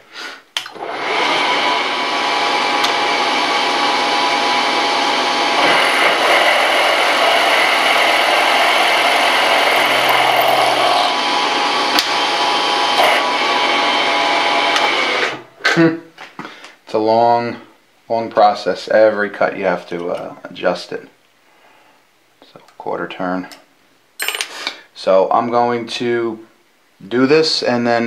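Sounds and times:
milling machine motor whine: 0.7s - 15.4s
boring bar cutting metal: 3.8s - 15.4s.

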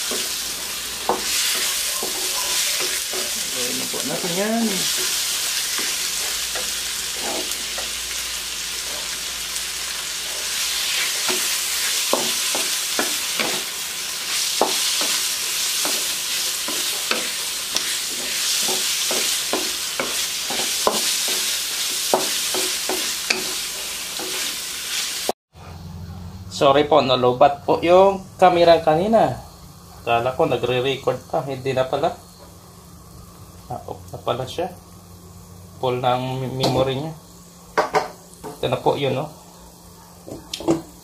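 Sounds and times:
food sizzling in hot oil: 0.0s - 25.4s, 28.4s - 41.0s
spatula scraping and tapping pan: 1.0s - 3.4s, 11.1s - 13.7s, 14.3s - 24.5s.

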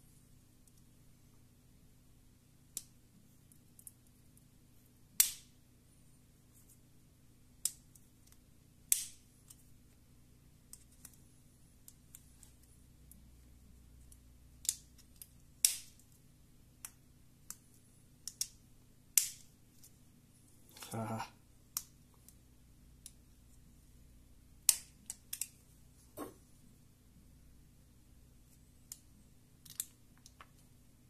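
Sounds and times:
plastic clicks and snaps: 18.2s - 18.6s, 24.6s - 25.6s, 28.8s - 30.7s.

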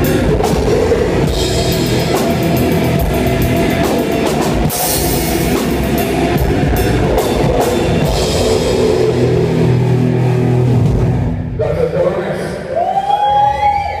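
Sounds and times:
drums and crashing cymbals: 0.0s - 11.6s
electric guitar: 0.0s - 11.6s
rock band playing: 0.0s - 12.2s.

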